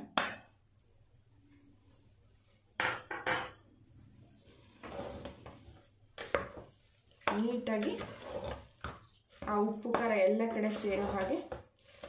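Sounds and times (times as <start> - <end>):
spatula scraping and stirring rice: 4.0 - 12.0.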